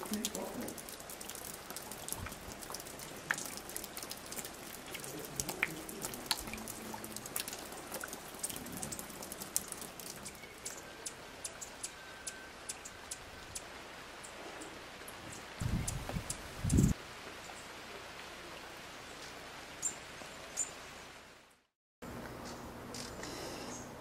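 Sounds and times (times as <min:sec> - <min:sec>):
water dripping onto leaves: 0:00.0 - 0:19.5
faint steady tone: 0:10.2 - 0:13.5.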